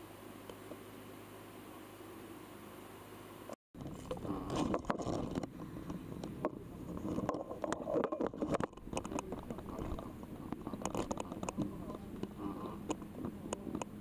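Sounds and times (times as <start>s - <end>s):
boat rumble: 3.8s - 14.0s
scuba gear knocking and scraping: 3.8s - 14.0s.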